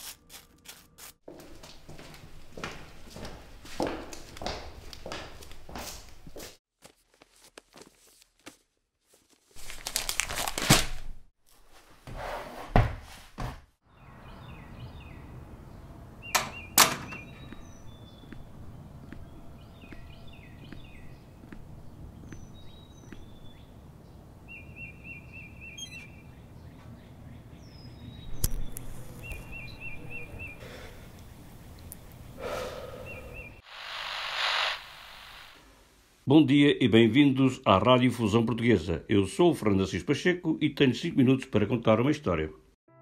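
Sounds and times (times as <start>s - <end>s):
paper rustling: 6.8s - 12.0s
small birds chirping: 13.8s - 33.6s.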